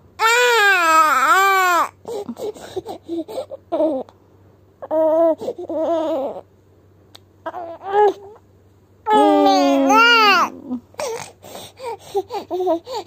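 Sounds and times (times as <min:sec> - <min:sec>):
baby crying: 0:00.2 - 0:02.0, 0:04.8 - 0:06.4, 0:07.5 - 0:08.4, 0:09.1 - 0:11.3
baby whimpering: 0:04.8 - 0:06.5, 0:07.4 - 0:08.4, 0:09.1 - 0:13.0.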